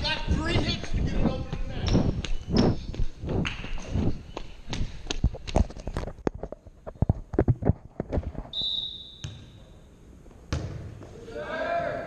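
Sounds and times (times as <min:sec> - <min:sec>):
referee's whistle: 0:08.5 - 0:09.6
volleyballs thudding on gym floor: 0:10.5 - 0:11.2.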